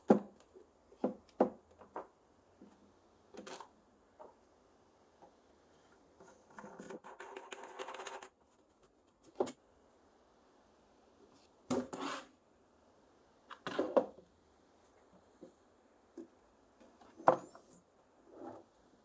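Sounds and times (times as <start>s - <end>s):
plastic rubbing and rattling: 6.2s - 9.5s.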